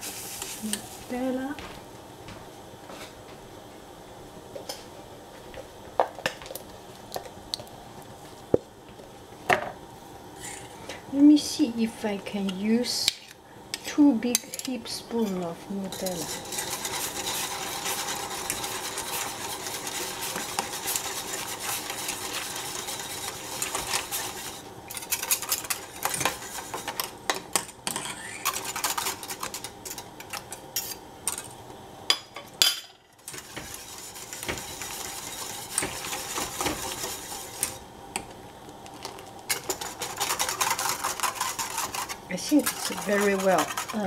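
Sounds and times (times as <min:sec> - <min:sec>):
whisk scraping metal pan: 0:15.2 - 0:27.1, 0:33.2 - 0:37.8, 0:39.5 - 0:44.0.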